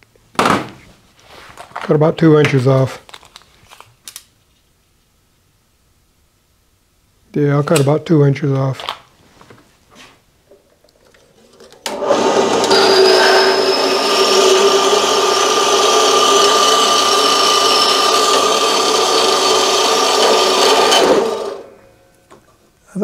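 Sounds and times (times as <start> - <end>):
bandsaw cutting steel: 11.9 - 21.9.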